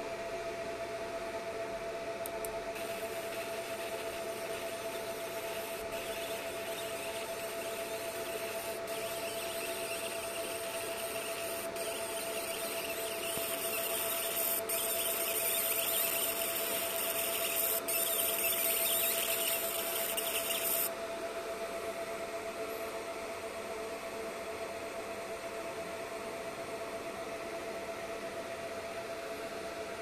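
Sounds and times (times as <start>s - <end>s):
steady hum: 0.0s - 22.6s
laser engraver buzzing: 2.6s - 20.9s.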